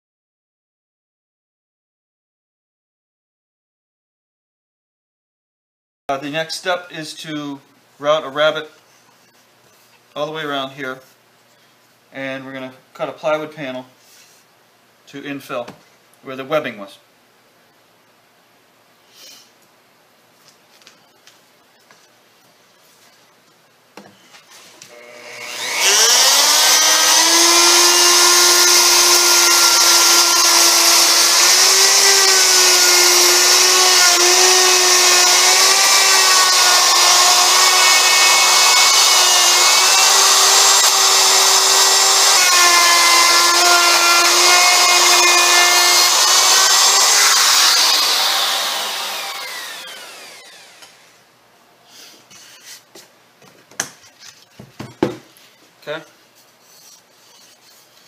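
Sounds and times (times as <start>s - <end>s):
electric router whining: 24.9s - 51.2s
router cutting wood: 24.9s - 51.2s.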